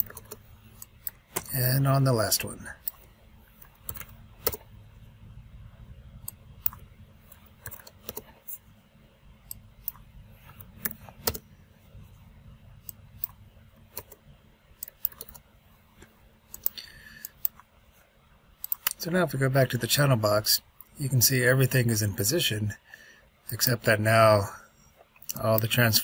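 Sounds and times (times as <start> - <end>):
computer mouse clicks: 0.0 - 1.6, 2.8 - 4.7, 6.2 - 8.6, 9.5 - 11.4, 12.8 - 14.2, 14.8 - 15.4, 16.0 - 17.6, 18.6 - 19.0
keyboard typing: 0.0 - 1.6, 2.8 - 4.7, 6.2 - 8.6, 9.5 - 11.5, 12.8 - 14.2, 14.8 - 17.6
low steady hum: 0.0 - 26.0.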